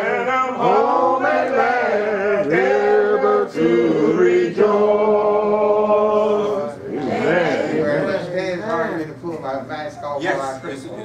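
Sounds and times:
unaccompanied hymn singing: 0.0 - 8.3.

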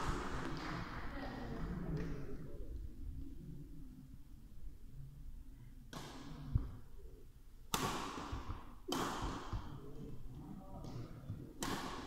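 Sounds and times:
badminton racket hitting shuttlecock: 7.7 - 9.7, 11.6 - 12.0.

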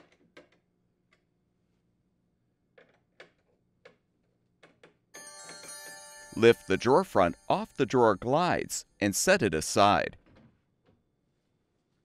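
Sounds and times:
background music: 5.2 - 10.2.

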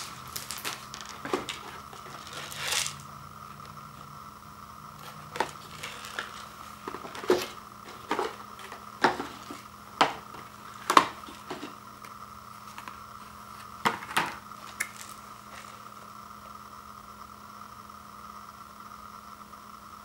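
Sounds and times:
cups knocking and scraping: 0.0 - 3.8, 5.0 - 11.8.

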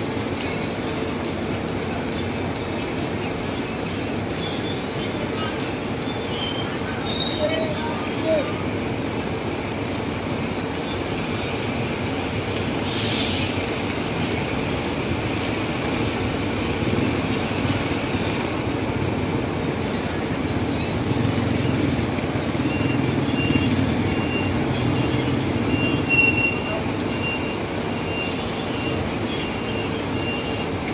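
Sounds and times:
vehicle engines running: 0.0 - 30.9
short hiss: 12.8 - 13.6.

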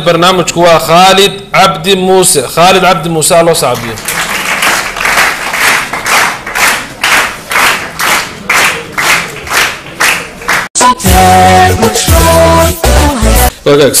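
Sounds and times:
audience clapping: 3.7 - 10.8.

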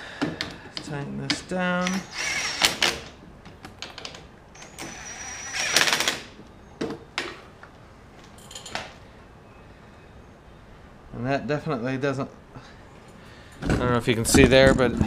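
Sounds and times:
cordless drill running: 1.8 - 3.0, 4.6 - 6.3.

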